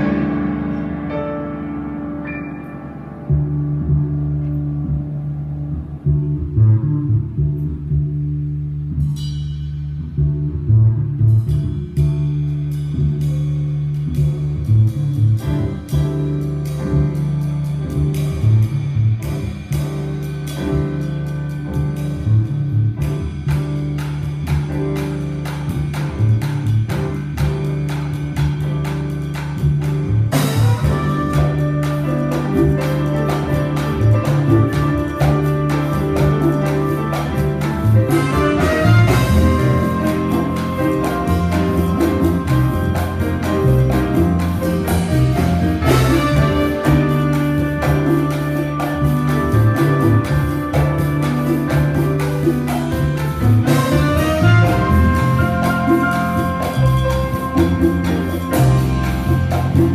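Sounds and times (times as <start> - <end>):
grand piano: 0.0 - 59.9
repeating low bass line: 0.0 - 59.9
drum kit and cymbals: 8.2 - 10.4, 11.1 - 59.9.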